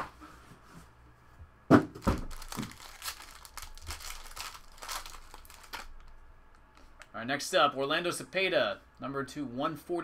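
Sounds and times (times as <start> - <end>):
foil wrapper crinkling: 2.0 - 6.2.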